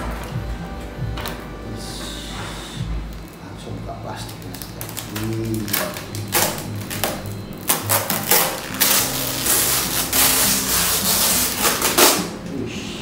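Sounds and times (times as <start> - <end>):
background music: 0.0 - 13.0
plastic bag crinkling: 3.1 - 12.4.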